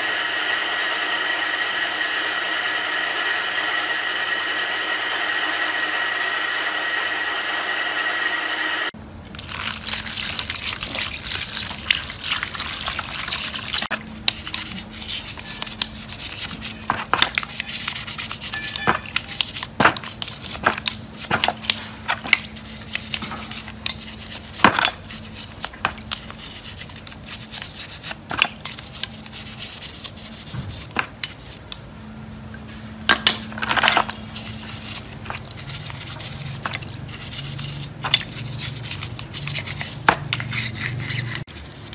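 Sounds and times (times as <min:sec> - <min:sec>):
motor-driven wire wheel running: 0:00.0 - 0:09.0
liquid splashing and sloshing: 0:09.2 - 0:15.4
brush scraping: 0:09.7 - 0:31.8, 0:33.7 - 0:41.9.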